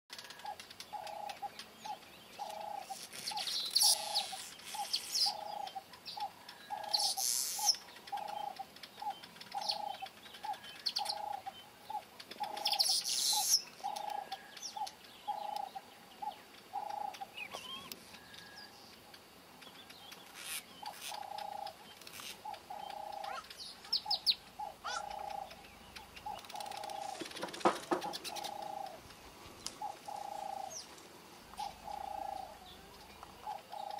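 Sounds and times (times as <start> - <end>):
low repeated bird call: 0.1 - 33.9
buzzy bird chattering: 0.3 - 15.8, 20.3 - 29.0.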